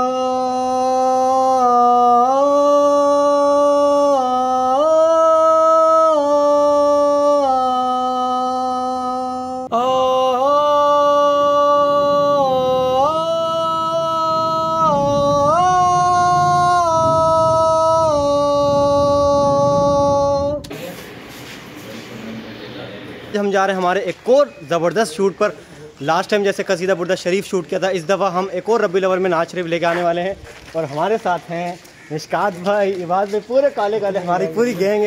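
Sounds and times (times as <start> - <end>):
man singing unaccompanied: 0.0 - 20.7.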